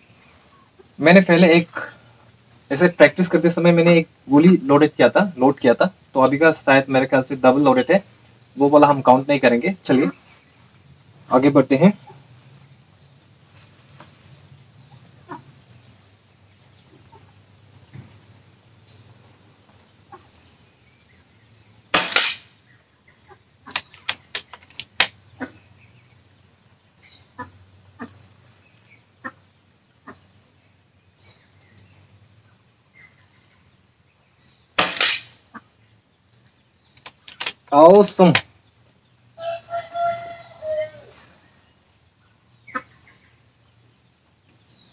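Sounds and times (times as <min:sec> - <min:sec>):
air rifle shot crack: 0:21.9 - 0:22.6, 0:34.8 - 0:35.4.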